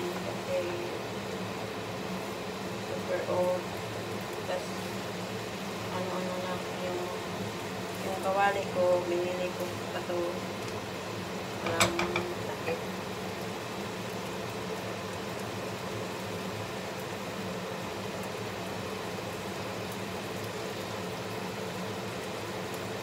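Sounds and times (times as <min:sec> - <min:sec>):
food sizzling in a frying pan: 0:00.0 - 0:23.0
wooden spatula knocking on pan: 0:11.6 - 0:12.8.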